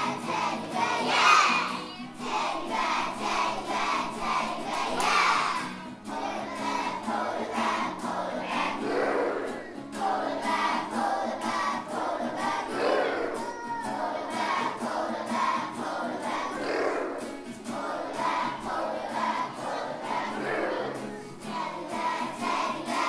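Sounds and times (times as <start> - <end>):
children singing: 0.0 - 23.0
backing track with steady beat: 9.2 - 23.0.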